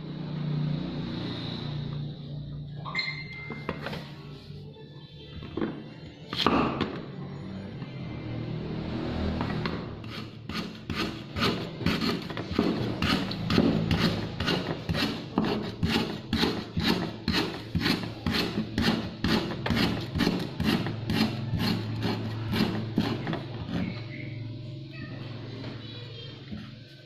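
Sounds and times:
cleaver chopping on wooden board: 10.5 - 23.2.

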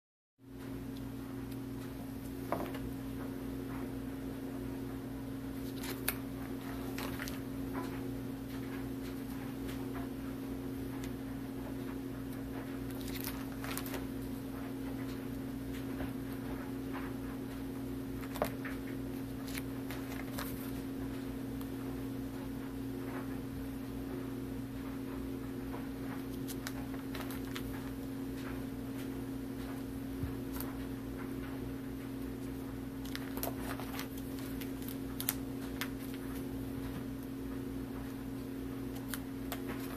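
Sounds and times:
steady hum: 0.4 - 39.9
plastic binder pages crackling: 5.5 - 10.1, 11.8 - 17.2, 18.0 - 21.2, 26.0 - 39.9.

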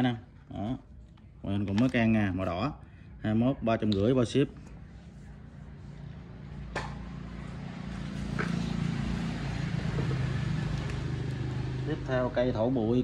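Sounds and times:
vehicle engine hum: 4.5 - 13.0.

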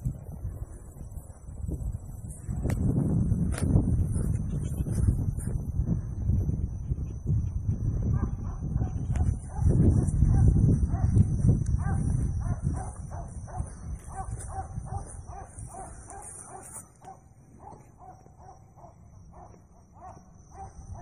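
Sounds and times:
wind rumbling on microphone: 0.0 - 21.0.

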